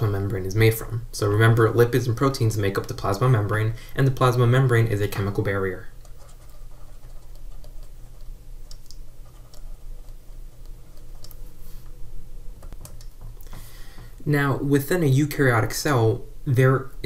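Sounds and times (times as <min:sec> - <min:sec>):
steady low hum: 0:00.0 - 0:17.0
stylus ticking on pen tablet: 0:06.0 - 0:11.4.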